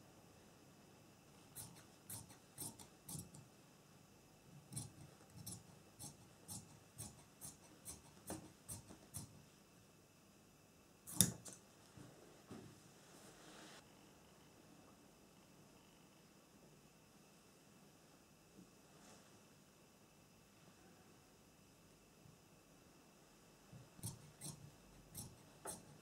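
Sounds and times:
shears snipping fabric: 0:01.5 - 0:03.4, 0:04.7 - 0:09.4, 0:11.1 - 0:11.6, 0:24.0 - 0:26.0
sharp click: 0:11.1 - 0:11.6.

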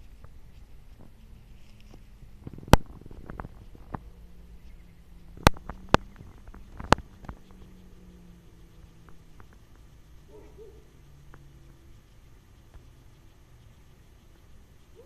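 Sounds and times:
rustling in grass: 0:00.0 - 0:15.0.

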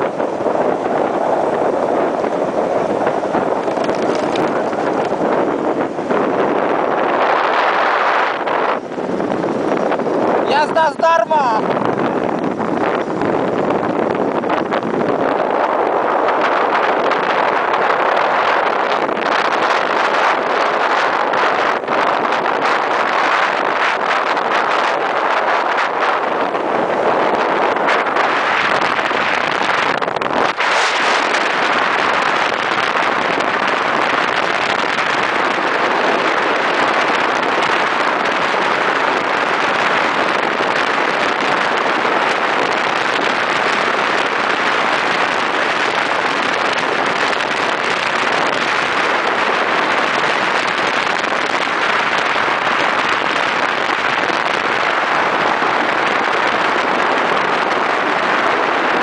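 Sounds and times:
road noise: 0:00.0 - 0:59.0
wind rushing over microphone: 0:00.0 - 0:59.0
motorcycle engine: 0:00.6 - 0:10.3.

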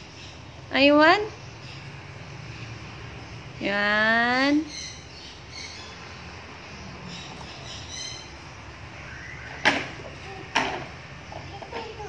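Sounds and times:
faint high chirps: 0:06.9 - 0:10.4
toy car knocking on tile floor: 0:09.6 - 0:12.0.

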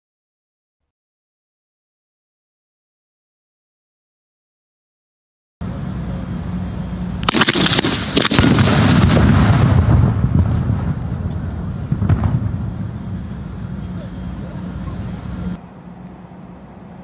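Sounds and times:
fuse burning: 0:05.6 - 0:16.2
sharp firecracker cracks: 0:07.2 - 0:12.6
loud firecracker blast: 0:07.2 - 0:13.6.

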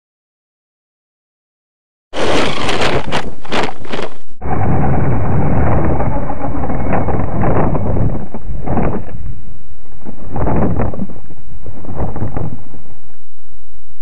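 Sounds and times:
buggy knocking as it tumbles: 0:02.2 - 0:09.2
rc car motor rumble: 0:02.2 - 0:13.5.

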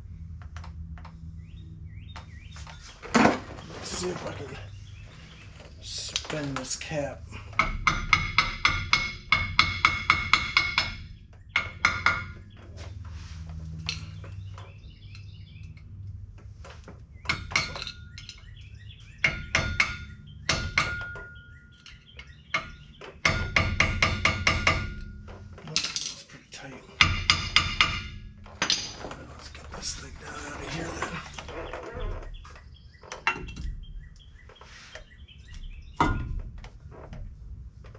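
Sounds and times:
hammer striking metal: 0:07.6 - 0:12.4, 0:22.6 - 0:26.1, 0:27.0 - 0:29.1.

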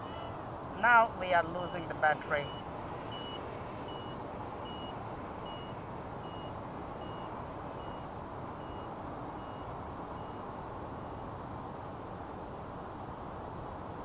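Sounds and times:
high-pitched alarm beeps: 0:00.0 - 0:10.4.

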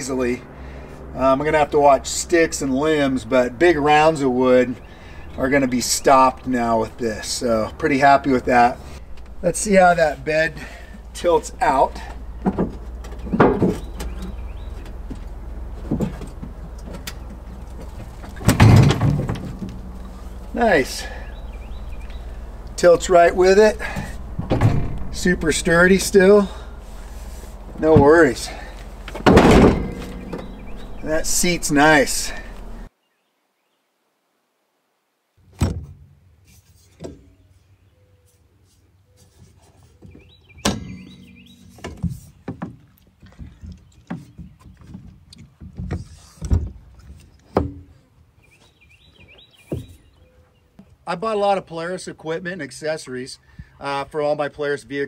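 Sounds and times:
bird chirping: 0:03.7 - 0:18.5, 0:19.4 - 0:34.0, 0:37.3 - 0:45.4, 0:47.0 - 0:50.9
dump bed knocking: 0:11.5 - 0:20.0, 0:22.8 - 0:26.8, 0:27.7 - 0:32.9
rattling knock: 0:12.4 - 0:14.4, 0:23.9 - 0:25.2, 0:29.1 - 0:31.0
plastic and metal latch clunks: 0:29.1 - 0:30.8.

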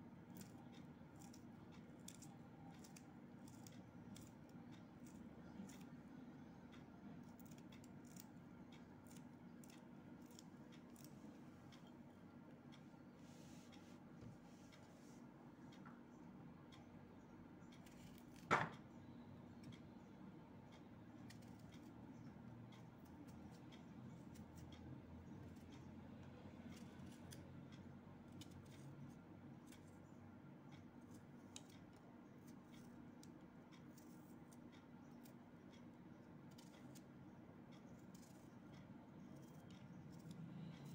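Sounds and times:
low steady hum: 0:00.0 - 0:40.9
knife snipping vegetables: 0:00.3 - 0:06.0, 0:07.2 - 0:11.1.

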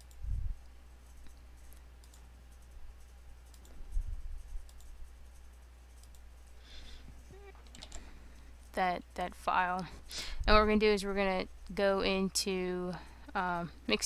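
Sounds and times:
computer mouse clicks: 0:00.0 - 0:06.5, 0:07.3 - 0:08.7
steady low hum: 0:00.0 - 0:14.0.

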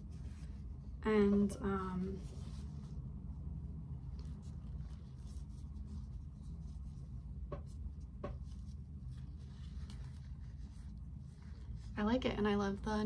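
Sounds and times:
low room hum: 0:00.0 - 0:13.0
hands rubbing cloth: 0:01.8 - 0:03.1, 0:04.0 - 0:12.1.

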